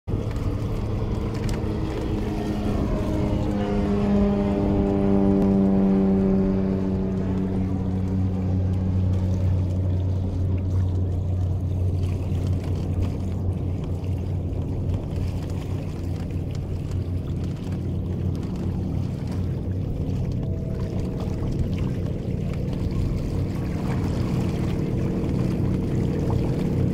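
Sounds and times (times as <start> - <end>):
passing engine drone: 0.1 - 26.9
water and wind wash: 0.1 - 26.9.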